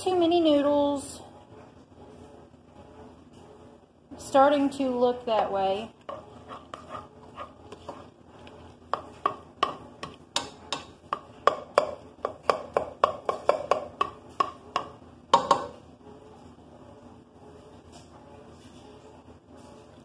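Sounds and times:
spoon stirring food in a pot: 0:05.4 - 0:16.8
spoon tapping pot rim: 0:08.9 - 0:15.7.

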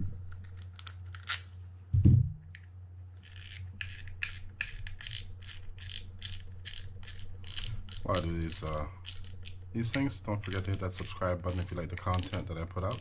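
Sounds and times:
loud low thump: 0:02.0 - 0:02.4
fishing reel handling clicks: 0:03.2 - 0:13.0.

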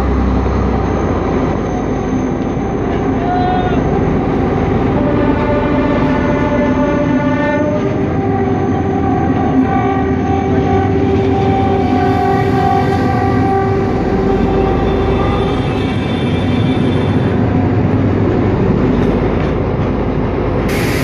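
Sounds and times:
moving train rumble: 0:00.0 - 0:21.0
train horn chord: 0:03.0 - 0:17.4.

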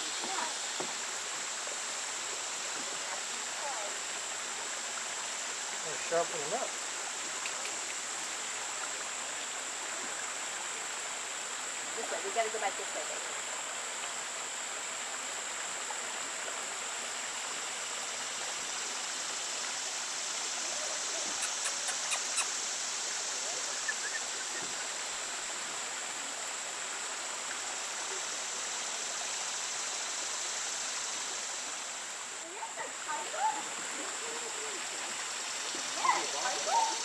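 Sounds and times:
faint ticks: 0:07.4 - 0:08.4, 0:21.3 - 0:22.6.

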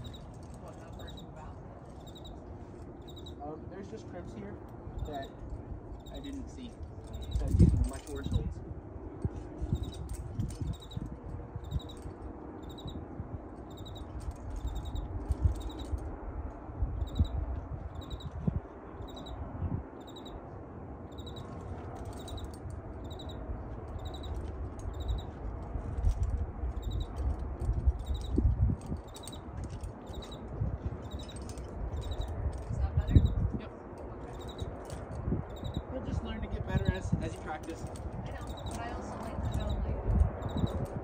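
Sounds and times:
wind buffeting microphone: 0:00.0 - 0:41.0
small creature chirping: 0:03.0 - 0:03.4, 0:17.0 - 0:18.3, 0:19.0 - 0:19.4, 0:20.0 - 0:20.4, 0:21.1 - 0:21.4, 0:22.2 - 0:23.4, 0:24.9 - 0:25.3.

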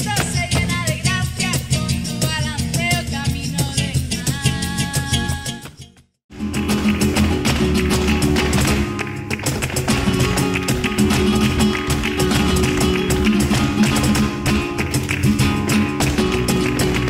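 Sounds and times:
acoustic guitars playing: 0:00.0 - 0:17.0
sharp percussive taps: 0:06.4 - 0:17.0.

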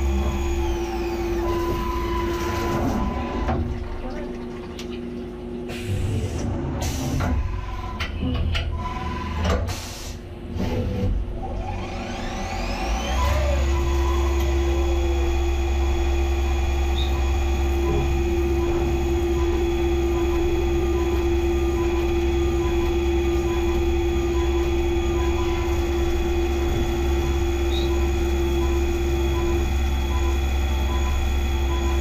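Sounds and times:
milling cutter whine: 0:00.0 - 0:03.6, 0:10.6 - 0:32.0.

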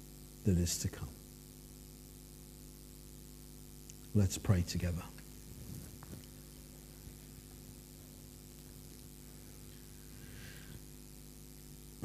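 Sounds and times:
low electrical hum: 0:00.0 - 0:12.0
faint hiss: 0:03.2 - 0:12.0.

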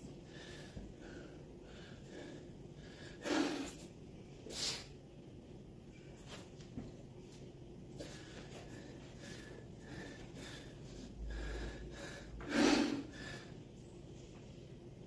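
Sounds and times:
man breathing hard: 0:00.1 - 0:05.0, 0:08.0 - 0:13.7.

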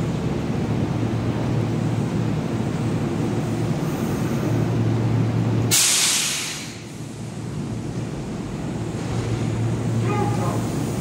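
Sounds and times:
electric train humming: 0:00.0 - 0:05.8, 0:06.7 - 0:11.0
compressed air hiss: 0:05.7 - 0:07.2.

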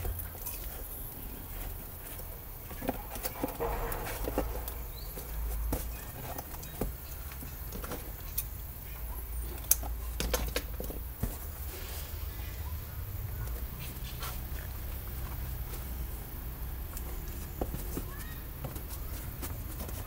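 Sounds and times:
steady low rumble: 0:01.1 - 0:07.4.

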